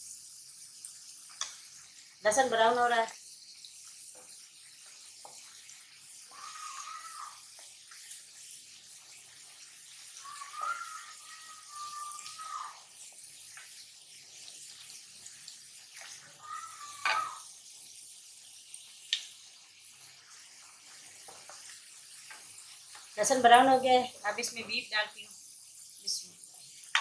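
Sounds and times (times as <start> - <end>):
garlic sizzling in oil: 0.0 - 27.0
drawn-out squeaky tones: 6.3 - 7.4, 10.1 - 12.8.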